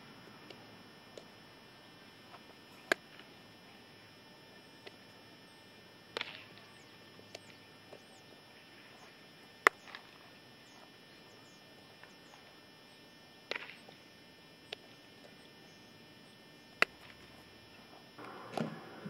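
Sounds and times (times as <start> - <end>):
birds chirping faintly: 0.0 - 19.0
bat cracking on ball: 2.3 - 3.4, 4.8 - 5.1, 6.1 - 8.1, 9.0 - 10.9, 13.4 - 14.0, 16.8 - 19.0.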